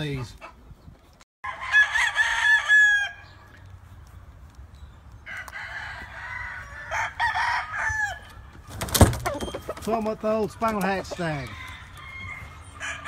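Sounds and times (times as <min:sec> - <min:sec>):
roosters crowing: 0:01.4 - 0:03.7, 0:05.2 - 0:13.0.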